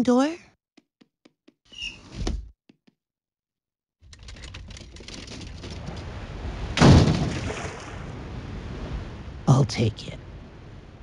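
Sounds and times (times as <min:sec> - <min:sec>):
cartoon rattling rumbling roll: 0:04.0 - 0:07.5
loud cartoon crash: 0:06.8 - 0:07.8.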